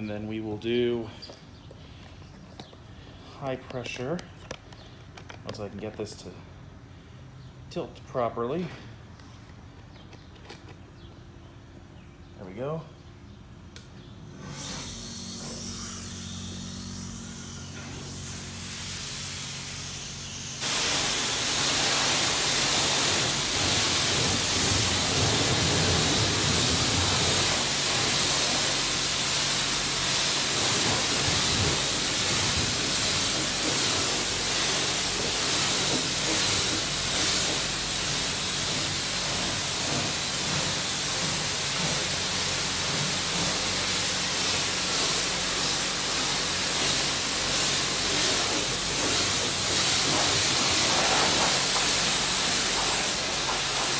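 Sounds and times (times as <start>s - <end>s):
high-pressure water spray hissing: 14.4s - 53.9s.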